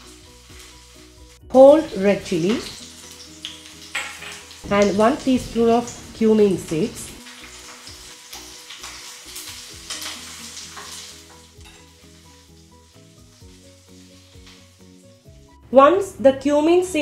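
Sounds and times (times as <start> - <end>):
soft background music: 0.0 - 17.0
spices sizzling in hot oil: 0.0 - 17.0
spoon stirring in pan: 7.3 - 12.5.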